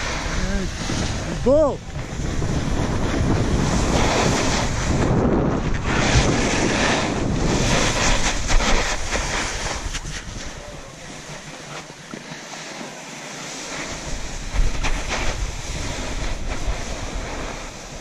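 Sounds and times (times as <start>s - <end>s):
wind rushing over microphone: 0.0s - 11.6s, 13.6s - 18.0s
snow hissing under skis: 0.0s - 18.0s.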